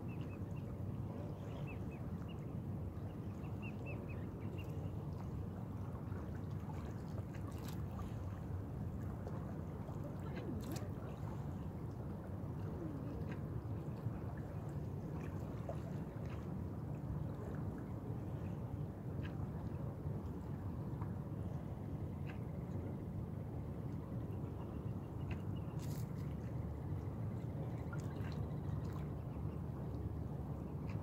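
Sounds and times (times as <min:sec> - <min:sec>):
steady low rumble: 0:07.9 - 0:31.0.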